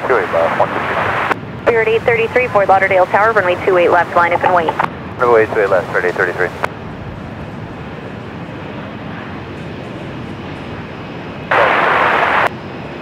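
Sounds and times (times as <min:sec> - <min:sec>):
radio static burst: 0:00.0 - 0:06.7, 0:11.5 - 0:12.5
jet engines rushing: 0:00.0 - 0:13.0.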